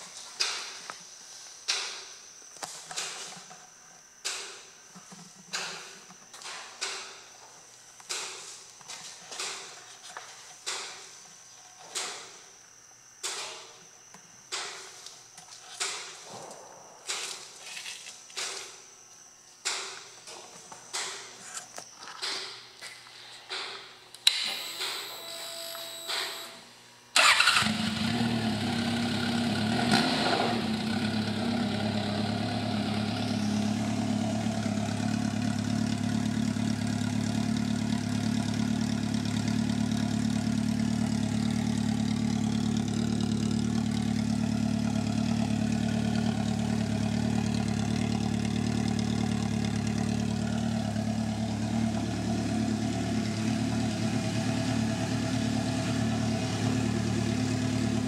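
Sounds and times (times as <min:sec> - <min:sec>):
motorcycle engine starting and idling: 0:27.2 - 0:58.0.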